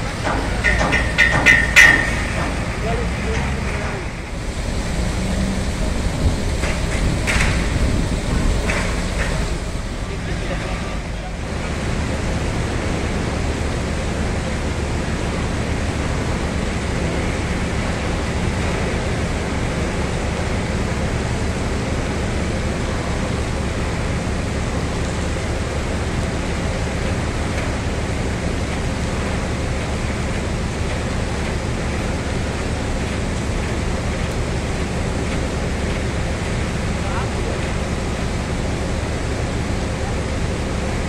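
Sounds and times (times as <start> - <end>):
machinery hiss: 0.0 - 11.7
low machinery hum: 0.0 - 41.0.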